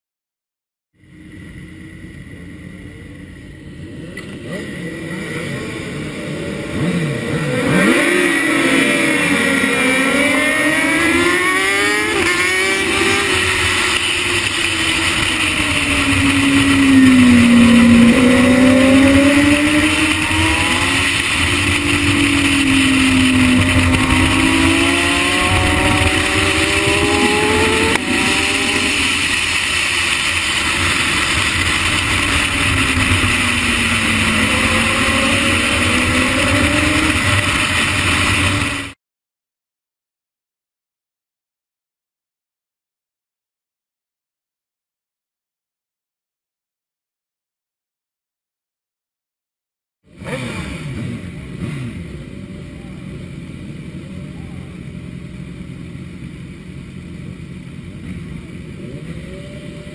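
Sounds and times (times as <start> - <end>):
motorcycle engine revving: 1.1 - 39.0, 50.1 - 59.9
wind rushing over microphone: 11.6 - 39.0.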